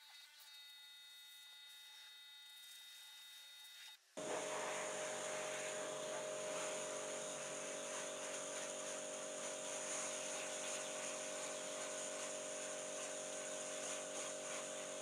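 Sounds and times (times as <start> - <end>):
pressure washer humming: 4.2 - 15.0
water jet hissing on wood: 4.2 - 15.0.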